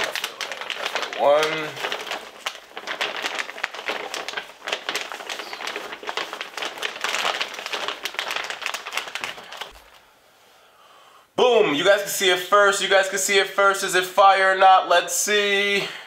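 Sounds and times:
plastic packaging crinkling: 0:00.0 - 0:10.1.

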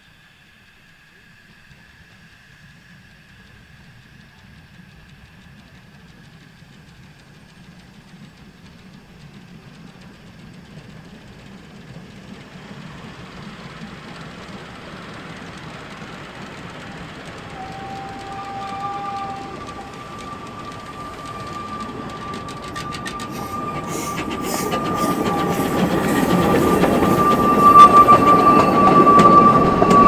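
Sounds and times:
steam train running on track: 0:00.0 - 0:30.0
steady high-pitched tones: 0:11.4 - 0:30.0.

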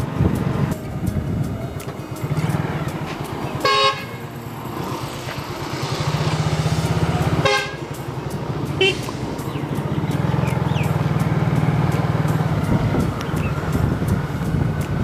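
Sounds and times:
small motorcycle engine running: 0:02.2 - 0:15.0
vehicle horn beeping: 0:03.6 - 0:04.2, 0:07.2 - 0:08.0, 0:08.8 - 0:09.2.

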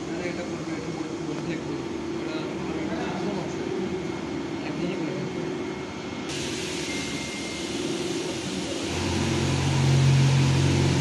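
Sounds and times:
sewing machine hiss and hum: 0:06.2 - 0:11.0.

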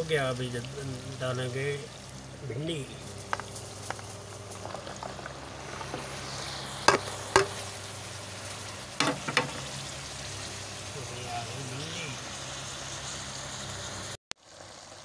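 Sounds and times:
masala bubbling and sizzling: 0:00.0 - 0:15.0
utensils knocking on pot: 0:06.9 - 0:07.6, 0:09.0 - 0:09.6.

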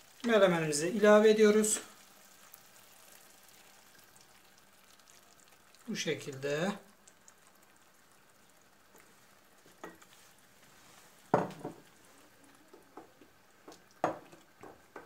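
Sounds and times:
faint sizzle: 0:00.0 - 0:15.0
wooden spoon stirring in pan: 0:00.0 - 0:15.0
spoon knocking against pan: 0:11.3 - 0:11.9, 0:12.8 - 0:15.0.

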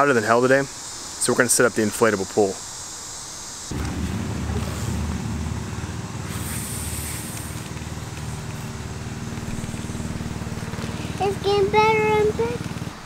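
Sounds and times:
low mechanical drone with flutter: 0:03.7 - 0:13.0.

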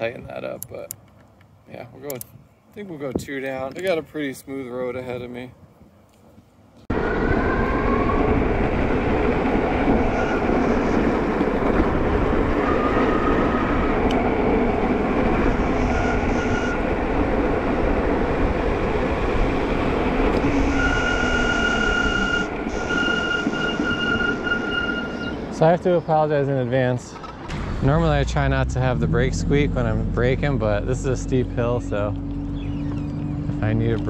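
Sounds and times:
high-pitched brake squeak: 0:15.6 - 0:16.8, 0:20.4 - 0:25.4.

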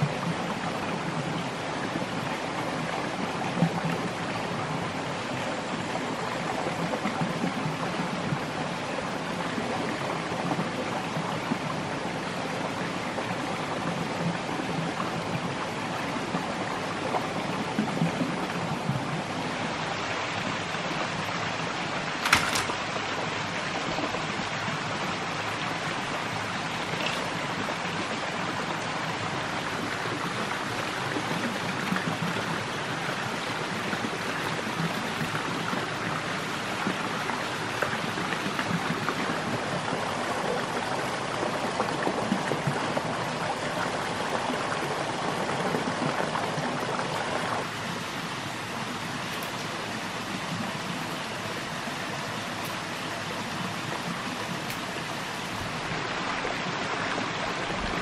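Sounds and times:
stream running: 0:00.0 - 0:58.0
sharp click: 0:22.2 - 0:22.8.

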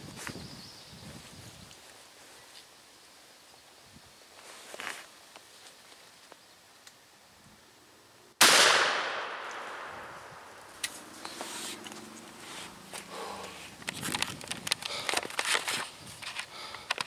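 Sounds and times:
rustling: 0:04.3 - 0:06.4, 0:09.6 - 0:17.0
shotgun blast echoing: 0:08.4 - 0:10.5.

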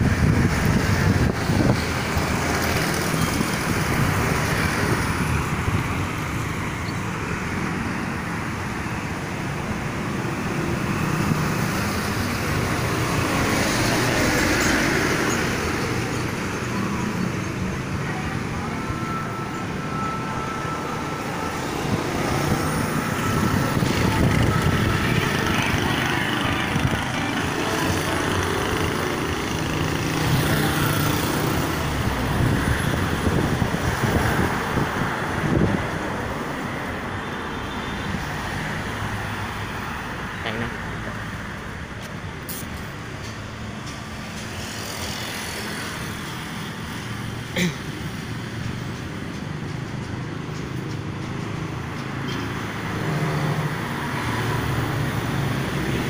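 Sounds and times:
truck passing: 0:00.0 - 0:37.2
cars passing: 0:00.0 - 0:56.0
motorcycles passing: 0:20.8 - 0:36.6.

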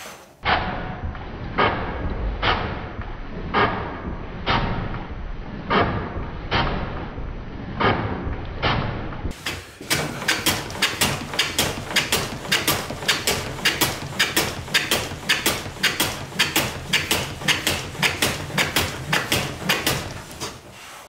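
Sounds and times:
hand plane shaving strokes: 0:18.8 - 0:21.0.

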